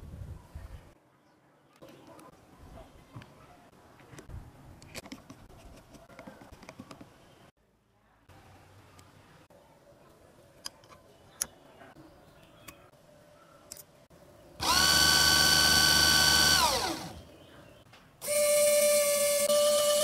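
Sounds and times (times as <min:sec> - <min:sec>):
faint clicks of parts handled: 0:13.7 - 0:14.0
motor high whine: 0:14.6 - 0:17.2.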